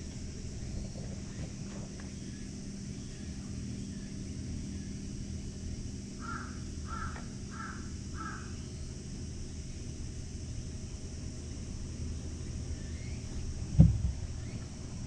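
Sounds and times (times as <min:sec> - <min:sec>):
low outdoor rumble: 0:00.0 - 0:15.0
crow cawing: 0:06.2 - 0:08.6.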